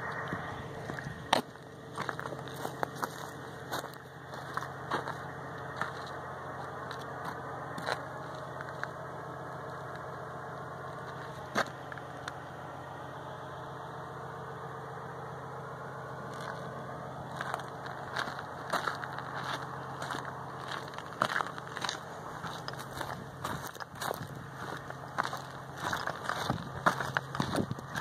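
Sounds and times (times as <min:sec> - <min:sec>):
low mechanical hum: 0:00.0 - 0:28.0.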